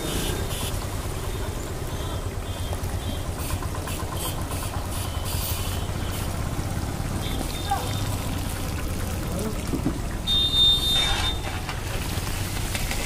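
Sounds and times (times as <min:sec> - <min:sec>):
hot oil sizzling and bubbling: 0:08.0 - 0:13.0.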